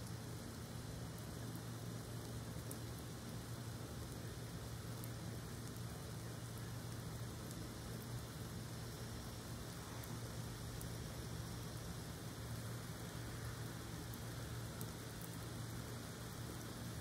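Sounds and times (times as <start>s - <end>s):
light rain hiss: 0.0s - 17.0s
low steady hum: 0.0s - 17.0s
raindrop ticks: 1.2s - 3.4s, 4.0s - 8.4s, 12.6s - 16.8s.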